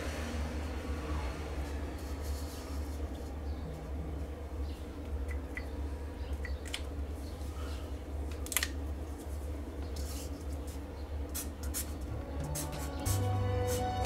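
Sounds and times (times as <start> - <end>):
steady low hum: 2.8 - 14.0.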